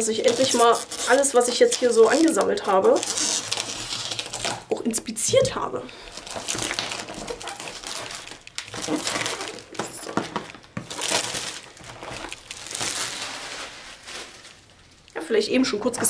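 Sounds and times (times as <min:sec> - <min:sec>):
plastic wrap crinkling and tearing: 0:00.0 - 0:16.0.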